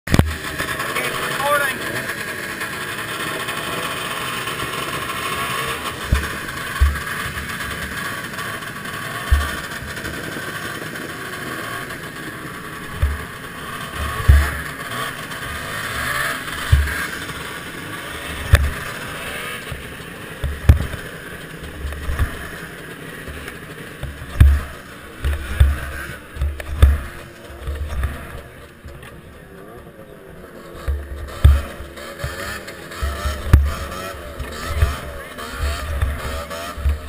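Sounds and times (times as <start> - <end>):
snowmobile engines droning: 0.1 - 37.0
thumps on microphone: 6.1 - 7.4, 9.3 - 9.7, 12.9 - 13.3, 14.0 - 14.6, 16.6 - 17.0, 18.4 - 18.9, 20.4 - 21.0, 21.8 - 22.5, 24.0 - 29.1, 30.8 - 32.4, 33.0 - 37.0.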